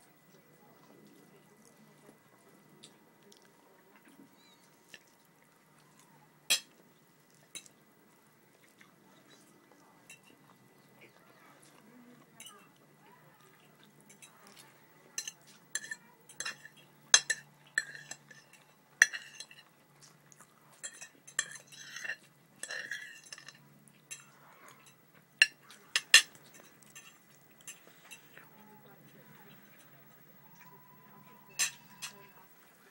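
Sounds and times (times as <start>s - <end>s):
cutlery clinking on a plate: 6.5s - 6.8s, 10.1s - 10.4s, 14.1s - 19.7s, 20.8s - 32.5s.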